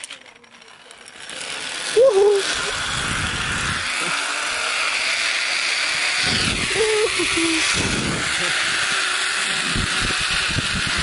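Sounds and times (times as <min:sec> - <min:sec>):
pulley whirring along cable: 0:00.0 - 0:11.0
wind buffeting microphone: 0:06.2 - 0:11.0.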